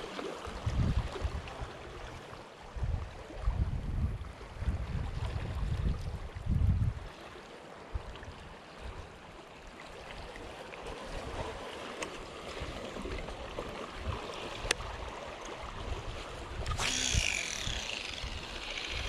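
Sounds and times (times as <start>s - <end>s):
wind rumbling on microphone: 0.0s - 7.2s, 12.5s - 19.0s
small waves lapping rocks: 0.0s - 19.0s.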